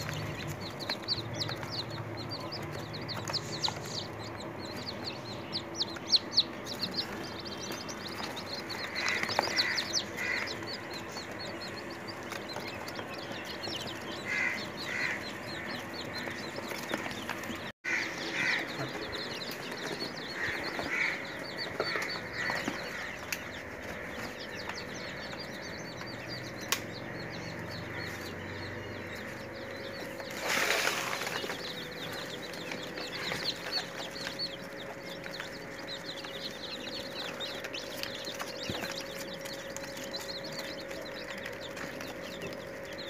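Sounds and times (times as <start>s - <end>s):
chicks peeping: 0.0s - 43.0s.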